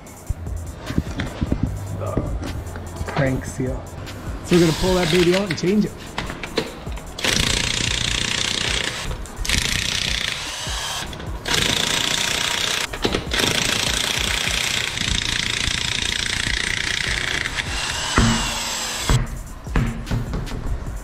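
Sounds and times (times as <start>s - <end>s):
electric impact wrench hammering: 4.5s - 19.3s.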